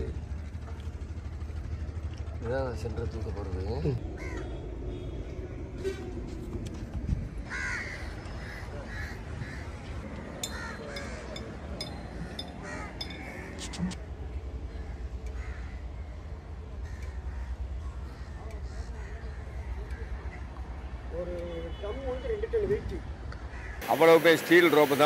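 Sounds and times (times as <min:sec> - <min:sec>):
steady low rumble: 0:00.0 - 0:20.6
crows cawing: 0:04.1 - 0:04.6, 0:07.5 - 0:14.0, 0:14.7 - 0:20.6, 0:23.4 - 0:24.0.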